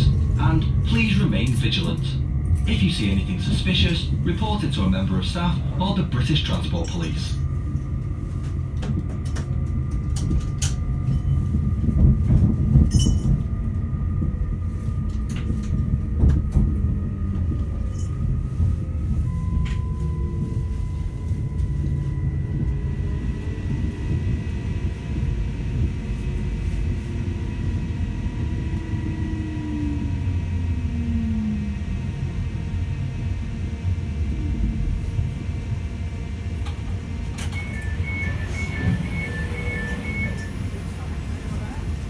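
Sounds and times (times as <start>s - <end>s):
train wheels rumbling on rail: 0.0s - 42.0s
train whine falling in pitch: 16.2s - 33.5s, 36.9s - 41.0s.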